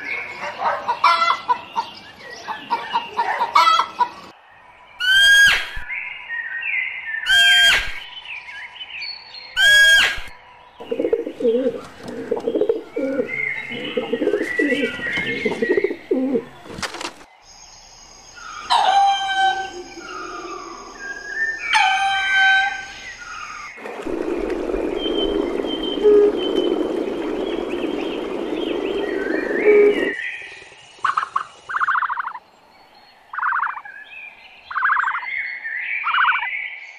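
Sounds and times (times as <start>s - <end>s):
low pulsing cooing: 10.8s - 16.6s, 23.8s - 30.2s
steady hiss: 23.8s - 31.7s.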